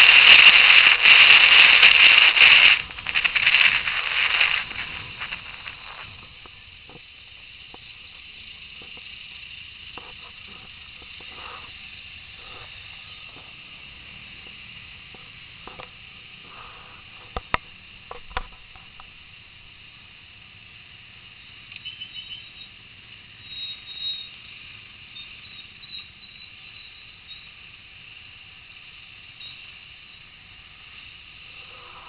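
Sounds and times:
muffled street traffic hiss: 0.0s - 32.0s
faint high chirps: 21.3s - 27.8s, 29.3s - 30.4s.

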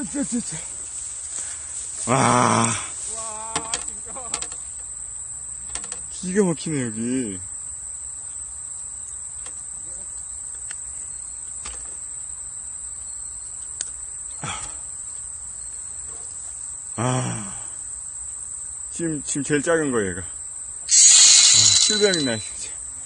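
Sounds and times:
insects trilling: 0.0s - 23.0s
short voiced exclamation: 3.1s - 3.8s.

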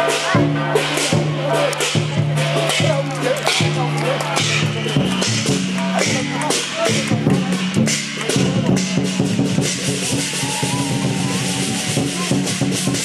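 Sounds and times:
cymbals crashing: 0.0s - 13.0s
drum beating: 0.0s - 13.0s
gongs: 0.0s - 13.0s.

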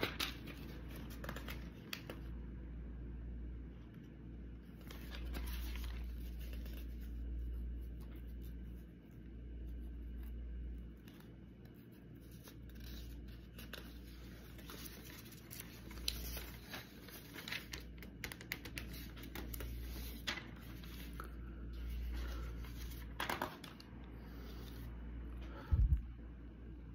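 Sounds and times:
rustling handling noise: 4.7s - 8.8s, 11.0s - 24.8s.

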